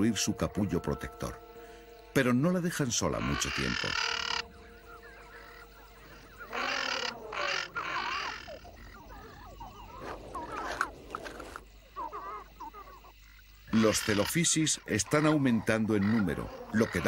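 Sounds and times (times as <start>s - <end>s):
harsh dinosaur screeching calls: 6.4s - 8.6s.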